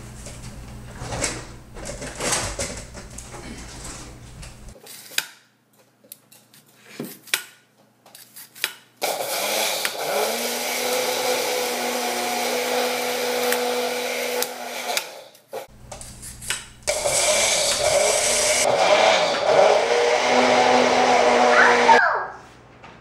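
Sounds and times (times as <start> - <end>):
blender grinding oats: 9.0 - 15.4, 16.9 - 22.0.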